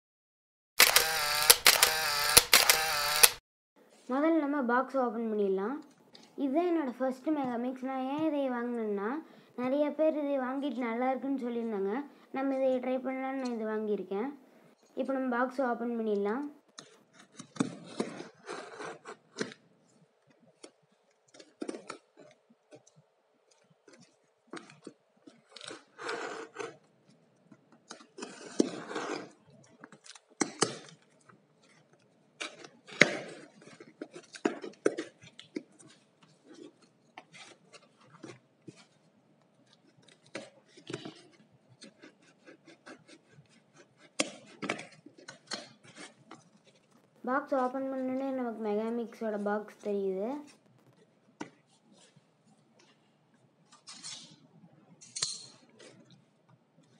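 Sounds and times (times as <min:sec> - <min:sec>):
blade slitting packing tape: 0:00.8 - 0:03.4.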